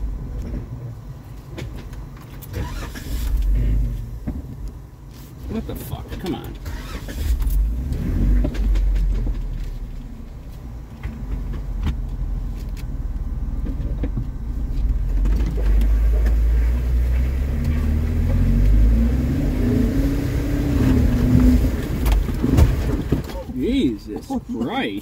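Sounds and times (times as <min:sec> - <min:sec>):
engine and drivetrain rumble: 0:00.0 - 0:25.0
car body knocks and rattles: 0:10.9 - 0:12.1, 0:21.3 - 0:23.5.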